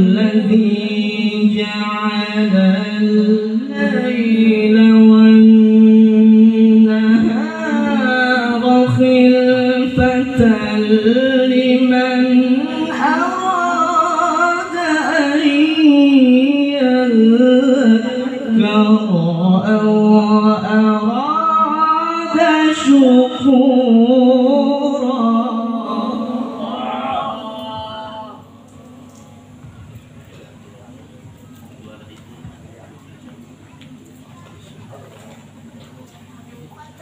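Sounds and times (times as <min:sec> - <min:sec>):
man reciting melodically into microphone: 0:00.0 - 0:29.2.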